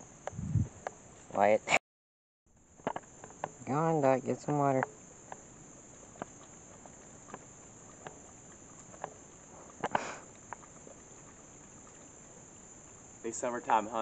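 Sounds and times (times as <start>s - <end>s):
insects droning: 0.0s - 1.7s, 2.5s - 14.0s
faint wet clicks: 4.3s - 13.3s.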